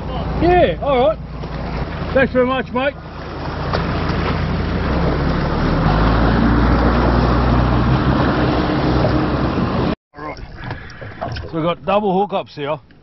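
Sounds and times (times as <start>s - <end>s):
boat engine running: 0.0s - 10.0s.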